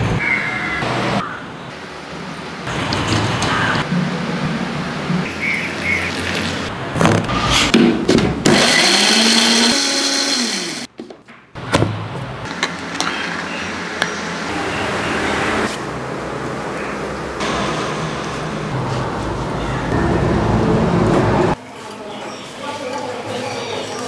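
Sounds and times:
mixer grinder motor running: 8.5s - 10.9s.

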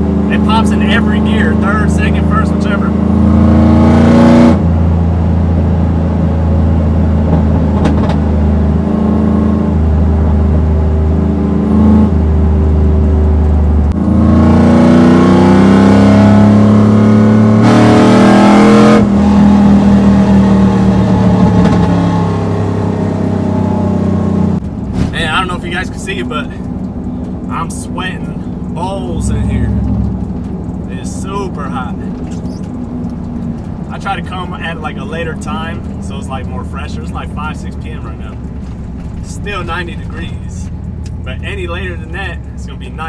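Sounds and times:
truck engine droning: 0.0s - 43.0s.

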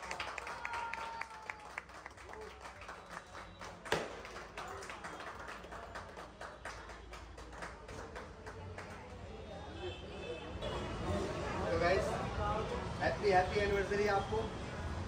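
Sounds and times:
hand clapping: 0.0s - 9.0s.

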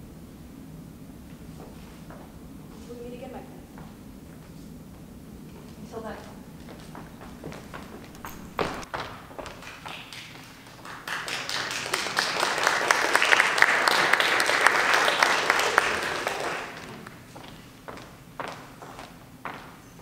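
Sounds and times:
audience applauding: 7.7s - 17.6s.

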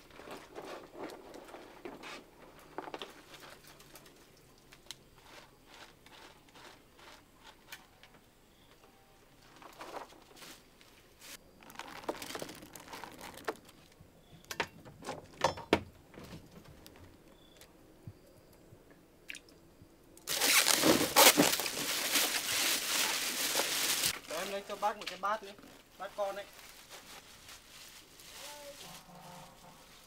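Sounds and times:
crunching handling sounds: 9.5s - 14.0s, 20.2s - 30.0s.

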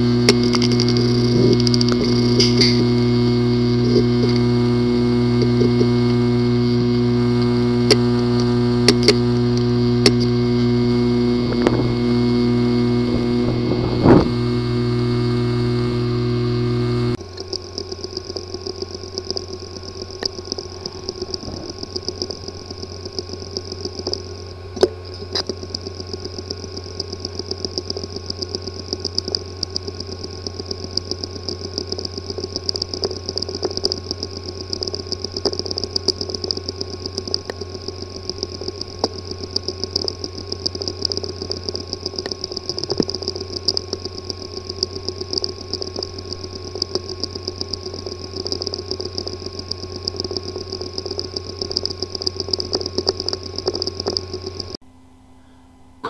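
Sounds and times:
hard drive click: 0.0s - 54.8s
hard drive buzzing and ticking: 0.0s - 56.0s.

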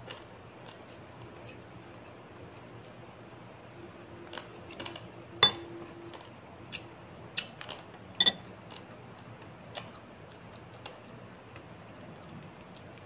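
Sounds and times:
dishes clinking on a table: 5.4s - 6.2s, 8.2s - 8.5s.

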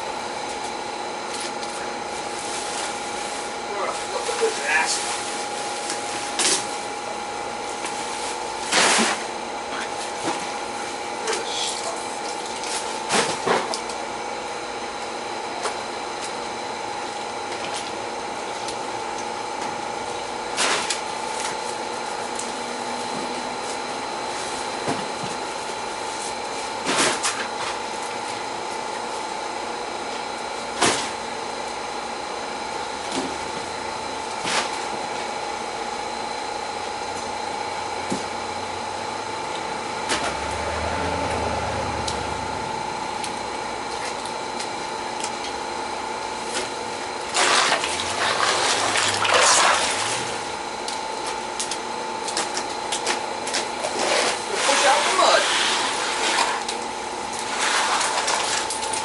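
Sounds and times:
mechanical hum: 0.0s - 59.0s.

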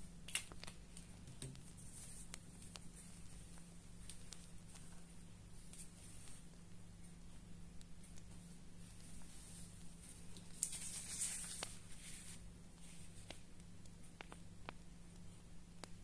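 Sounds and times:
faint low hum: 0.0s - 16.0s
paper rustling: 9.0s - 13.4s.

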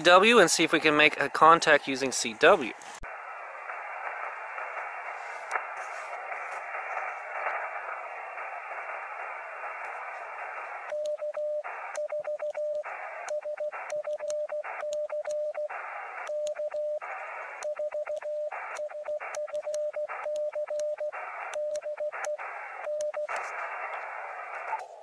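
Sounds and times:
radio band hiss: 0.0s - 25.0s
morse code beeps: 10.8s - 23.6s.

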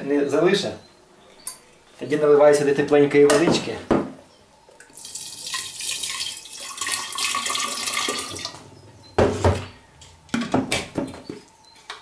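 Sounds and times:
water pouring into glass jar: 4.9s - 8.6s.

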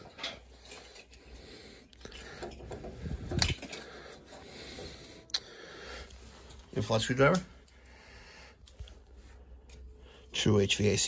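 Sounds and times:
gauge threading clicks and scraping: 0.0s - 10.3s.

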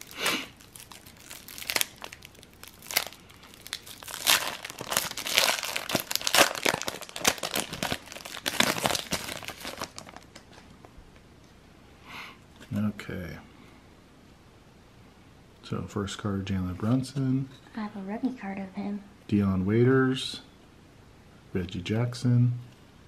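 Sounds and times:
foil wrapper crinkling and tearing: 0.0s - 10.6s.

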